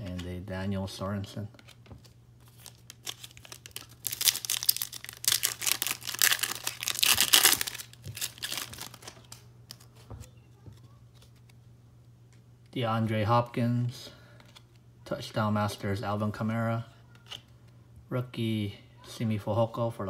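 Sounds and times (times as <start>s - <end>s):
foil wrapper crinkling: 2.4s - 9.9s.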